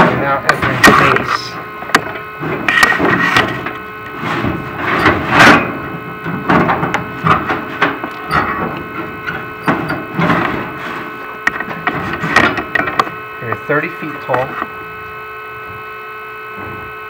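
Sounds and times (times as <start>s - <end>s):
cable scraping and knocking on metal: 0.0s - 13.2s
steady electrical whine: 0.0s - 17.0s.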